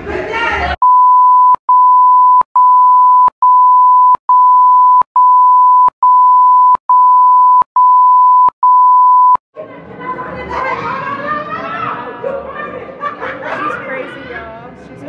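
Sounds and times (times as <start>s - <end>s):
censor bleep beeps: 0.8s - 9.4s.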